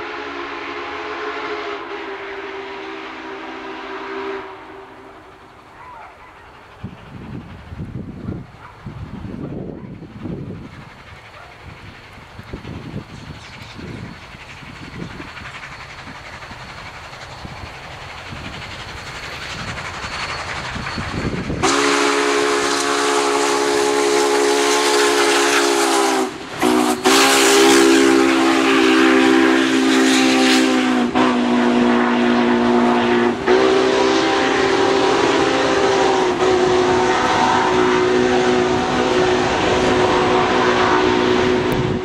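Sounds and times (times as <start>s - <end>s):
steam locomotive whistle blasts: 0.0s - 5.4s, 20.2s - 42.0s
steam locomotive exhaust chuffs: 0.0s - 42.0s.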